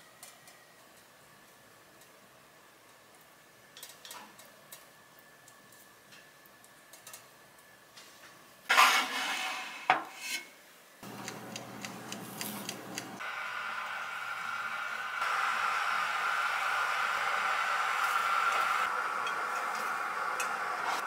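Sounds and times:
metal rack scraping and clattering: 8.7s - 10.5s
oven humming: 11.0s - 21.0s.

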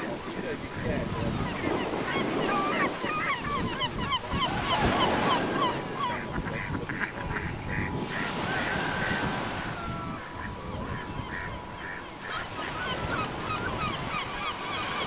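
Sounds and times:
birds chirping: 0.0s - 15.0s
wind: 0.0s - 15.0s.

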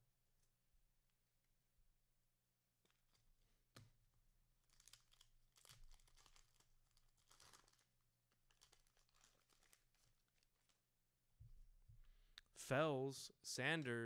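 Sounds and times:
plastic wrapper tearing: 4.6s - 10.8s.

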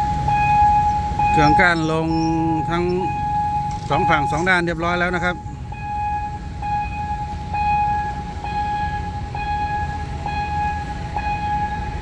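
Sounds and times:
level crossing bell dinging: 0.0s - 6.0s
low road traffic rumble: 0.0s - 12.0s.

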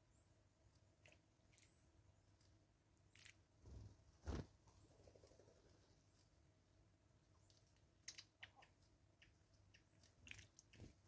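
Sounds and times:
wing flutters: 3.6s - 6.0s.

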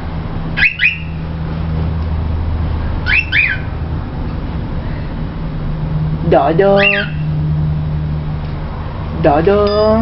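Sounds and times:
steady low hum: 0.0s - 10.0s
cockatiel whistling: 0.6s - 1.2s, 3.1s - 3.7s, 6.8s - 7.3s.

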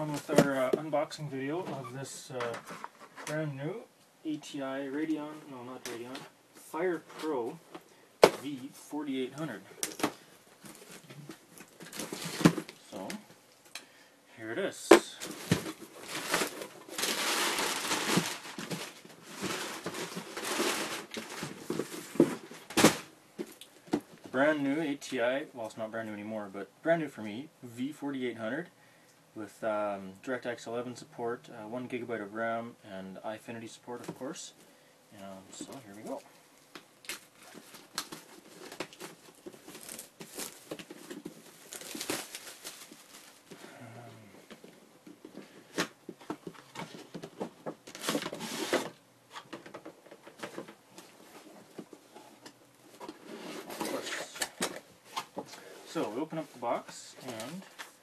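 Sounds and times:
packing paper rustling: 9.5s - 13.1s, 15.1s - 23.1s, 37.0s - 43.7s, 45.2s - 51.9s
plastic shrink-wrap crinkling: 15.2s - 22.7s, 36.0s - 43.6s.

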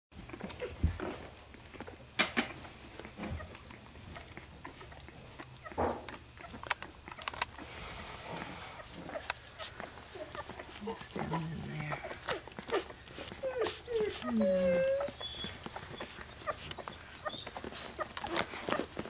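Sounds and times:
puppies sucking and smacking: 0.2s - 19.0s
puppy grunt: 3.0s - 19.0s.

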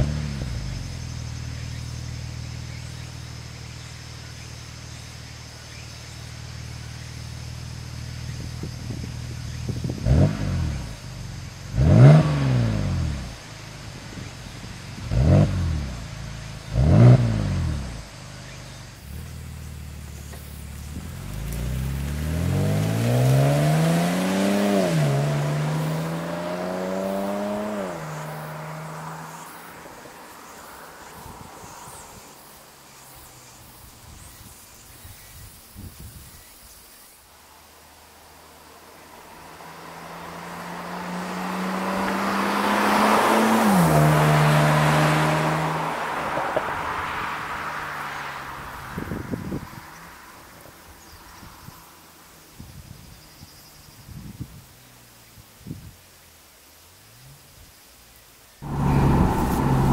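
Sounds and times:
car engine accelerating hard: 0.0s - 33.6s, 38.9s - 50.6s, 58.6s - 59.9s
car engine idling: 58.6s - 59.9s.

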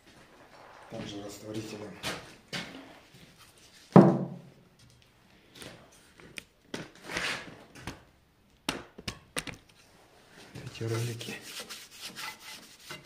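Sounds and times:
loud thunk: 4.0s - 4.4s.

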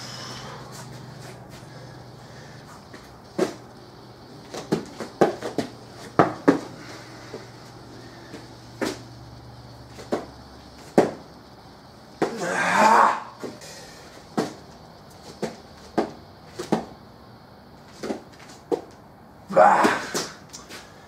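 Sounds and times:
bare feet and hands thumping on rubber floor: 2.9s - 3.6s, 4.4s - 7.5s, 8.3s - 9.1s, 9.9s - 11.3s, 12.2s - 12.5s, 14.2s - 17.0s, 17.9s - 19.0s.

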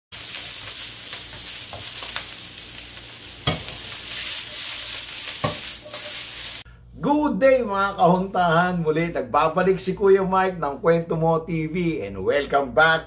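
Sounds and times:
meat sizzling in a wok: 0.1s - 6.7s
spatula scraping a metal pan: 3.4s - 6.4s.

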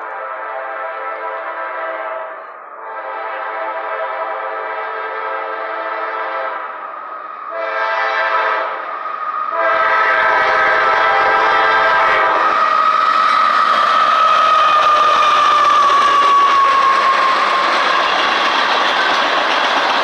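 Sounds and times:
train air horn blasts: 0.0s - 6.9s, 7.5s - 19.1s
low rumble of train: 0.0s - 20.0s.

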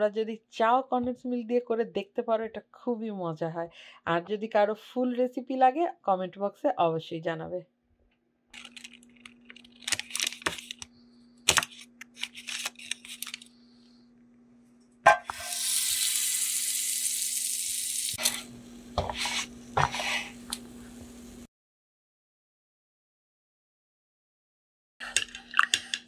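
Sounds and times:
paper crinkling: 8.6s - 13.6s
butter sizzling in frying pan: 15.3s - 18.2s.

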